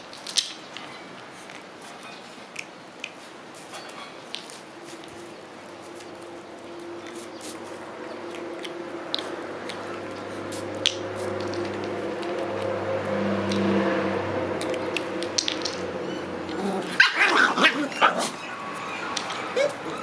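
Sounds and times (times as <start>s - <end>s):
steady low hum: 4.6s - 17.0s
puppies yapping: 14.6s - 20.0s.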